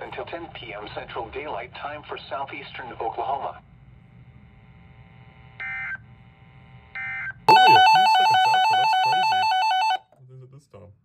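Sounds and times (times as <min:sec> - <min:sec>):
buzzy digital alert bursts: 0:07.5 - 0:09.3
loud warbling alarm: 0:07.5 - 0:10.0.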